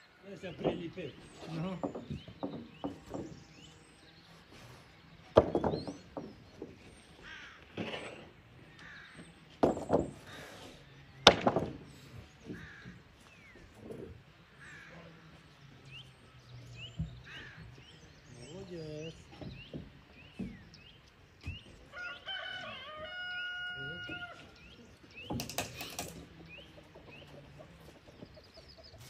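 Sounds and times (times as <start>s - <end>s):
songbirds chirping faintly: 0.0s - 29.0s
crow cawing: 7.2s - 7.7s, 12.6s - 13.0s.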